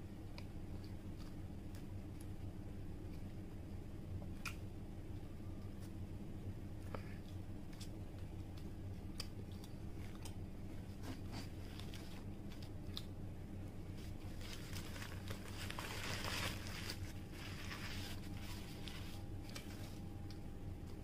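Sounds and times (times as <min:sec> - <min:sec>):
low hum: 0:00.0 - 0:21.0
chewing with mouth clicks: 0:06.8 - 0:10.4
paper wrapper crumpling: 0:14.0 - 0:20.0.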